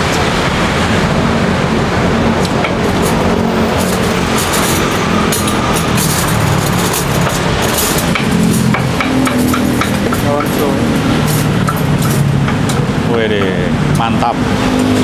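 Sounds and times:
street traffic: 0.0 - 15.0
bowls and utensils clinking: 2.4 - 13.6.

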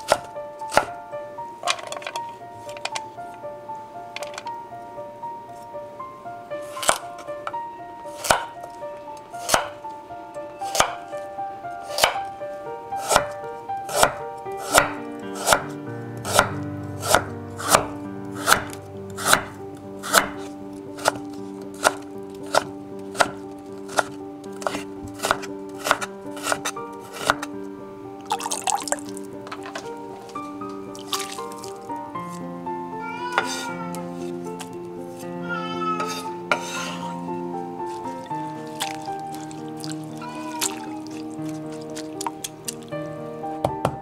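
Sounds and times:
knife striking wooden cutting board: 0.0 - 0.9, 8.2 - 8.5, 9.4 - 9.8, 10.7 - 11.0, 11.9 - 12.2, 13.0 - 27.5.

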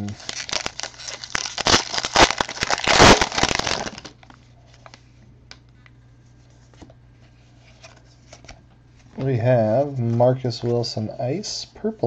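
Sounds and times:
foil wrapper crinkling: 0.0 - 5.0.

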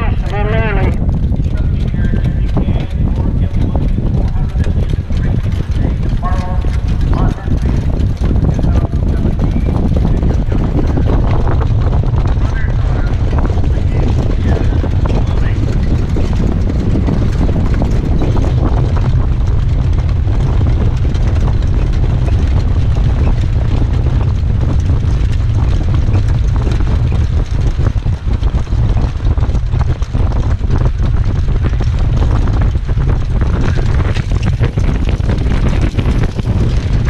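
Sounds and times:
hooves knocking on dirt track: 0.0 - 37.0
wind buffeting microphone: 0.0 - 37.0.

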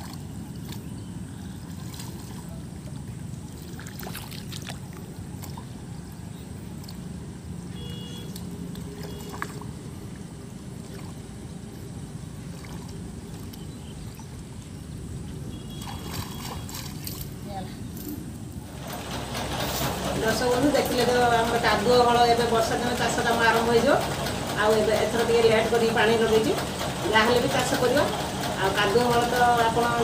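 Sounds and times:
hands splashing in muddy water: 1.6 - 5.8, 15.8 - 17.4.

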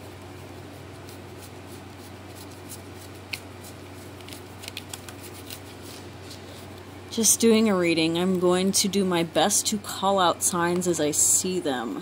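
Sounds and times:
cards being shuffled: 0.1 - 6.8.

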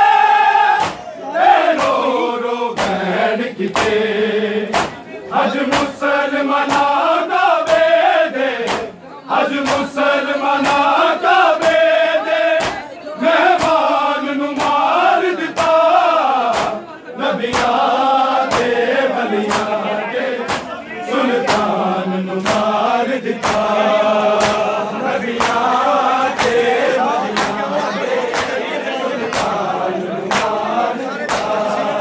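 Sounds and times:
men chanting in chorus: 0.0 - 32.0
hands slapping chests: 0.8 - 1.1, 1.7 - 2.0, 2.8 - 3.0, 3.7 - 4.0, 4.7 - 5.0, 5.7 - 6.0, 6.7 - 7.0, 7.7 - 7.9, 8.6 - 9.0, 12.6 - 12.8, 14.6 - 14.8, 16.5 - 16.8, 17.5 - 17.8, 18.5 - 18.8, 19.5 - 19.8, 20.4 - 20.8, 21.4 - 21.7, 22.4 - 22.8, 23.4 - 24.7, 25.4 - 25.7, 26.3 - 27.6, 28.3 - 28.6, 29.2 - 29.6, 30.3 - 30.6, 31.3 - 31.6.

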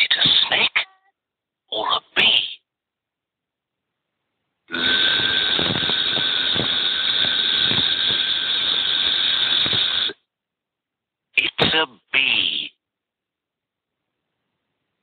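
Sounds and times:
bee-like buzzing: 4.7 - 10.2.

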